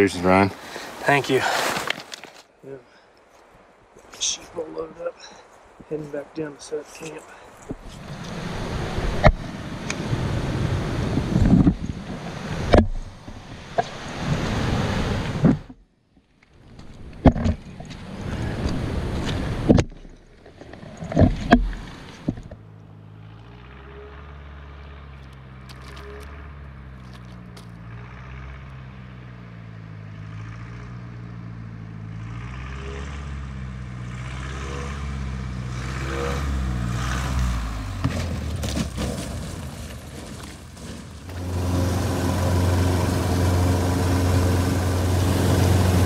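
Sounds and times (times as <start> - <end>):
wind rushing across microphone: 7.6 - 15.7
propeller engine drone: 8.0 - 15.5, 41.2 - 46.0
sharp bumps: 37.0 - 46.0.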